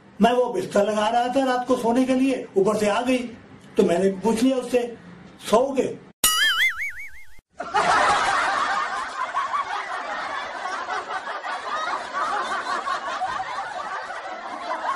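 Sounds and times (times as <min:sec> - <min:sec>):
warbling cartoon tone: 0:06.2 - 0:07.4.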